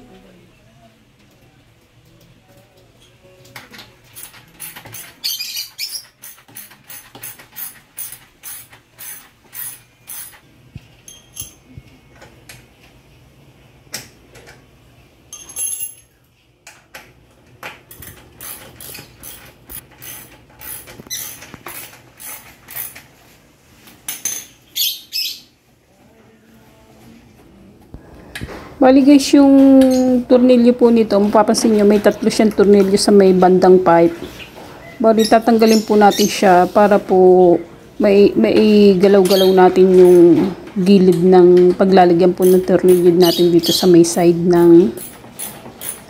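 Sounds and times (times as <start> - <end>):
ratchet wrench clicking: 4.2 - 5.1, 5.9 - 10.4, 18.0 - 23.0, 45.0 - 46.0.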